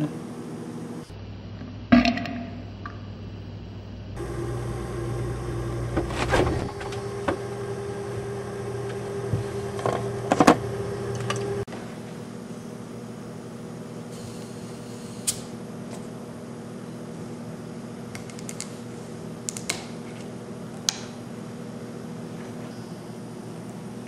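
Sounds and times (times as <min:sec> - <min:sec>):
kitchen appliance humming: 0:04.1 - 0:24.0.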